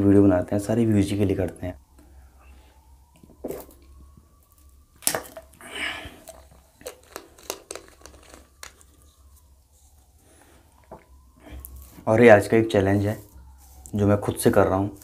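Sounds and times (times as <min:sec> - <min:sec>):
screw cap clicking and crinkling: 0:06.3 - 0:08.9.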